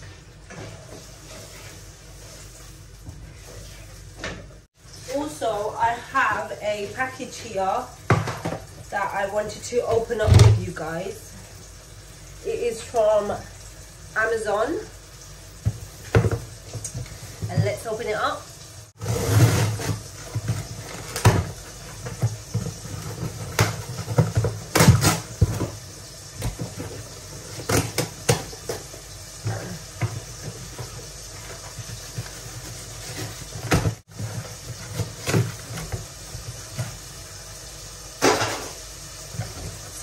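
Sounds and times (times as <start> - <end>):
packaging rustling and tearing: 19.0 - 25.8, 30.2 - 37.1.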